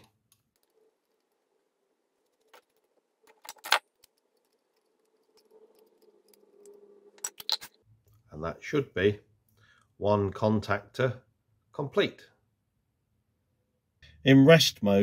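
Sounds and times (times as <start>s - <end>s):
metal nuts and washers clinking: 2.4s - 5.4s.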